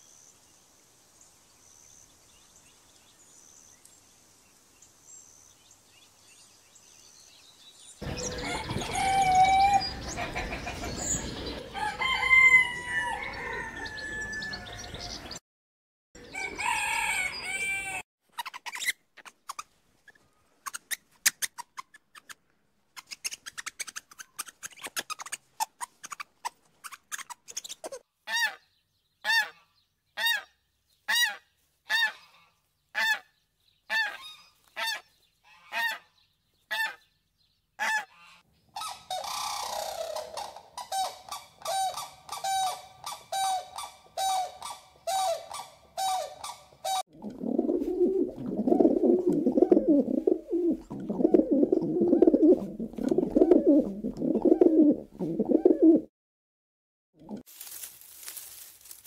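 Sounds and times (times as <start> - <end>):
pigeons cooing: 46.9 - 56.1.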